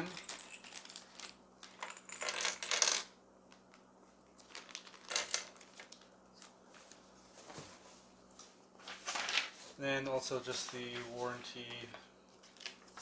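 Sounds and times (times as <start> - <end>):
plastic bag crinkling: 4.4 - 7.0.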